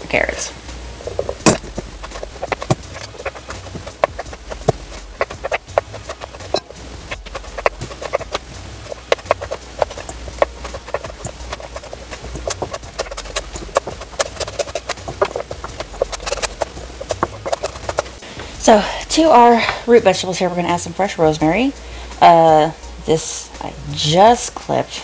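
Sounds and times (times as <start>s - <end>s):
knife chopping on wooden board: 1.3s - 18.2s.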